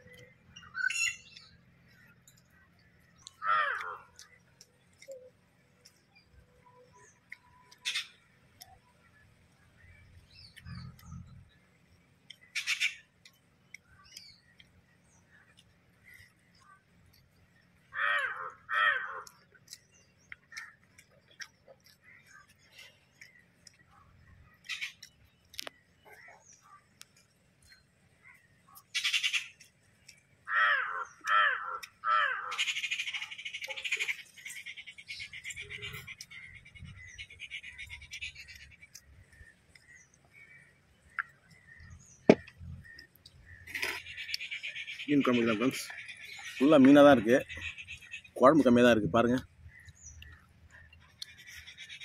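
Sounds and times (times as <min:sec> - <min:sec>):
harsh bird squawk: 0:00.6 - 0:01.4, 0:03.2 - 0:04.3, 0:07.8 - 0:08.2, 0:12.5 - 0:13.1, 0:17.9 - 0:19.5, 0:28.7 - 0:29.6, 0:30.5 - 0:39.0, 0:51.0 - 0:52.0
man eating with wet smacks: 0:01.2 - 0:06.4, 0:09.7 - 0:17.8, 0:19.1 - 0:30.4, 0:31.2 - 0:32.1, 0:33.1 - 0:44.8, 0:49.3 - 0:52.0
crow cawing: 0:03.2 - 0:04.3, 0:17.9 - 0:19.4, 0:30.4 - 0:34.0.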